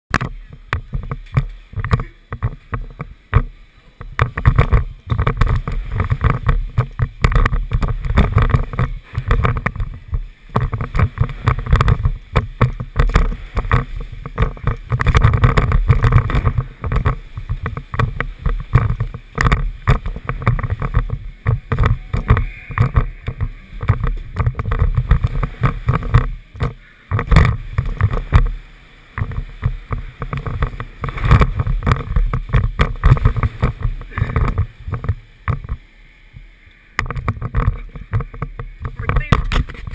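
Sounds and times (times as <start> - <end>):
sharp knocks: 0.1 - 28.5
tyres rolling over wooden ramps: 0.1 - 35.9
wind buffeting microphone: 0.1 - 39.9.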